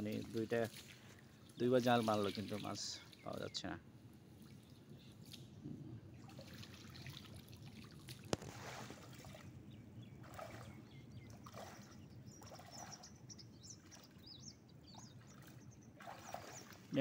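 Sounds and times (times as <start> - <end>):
water dripping off a net: 0.0 - 3.4, 6.4 - 9.4
legs wading through water: 0.0 - 17.0.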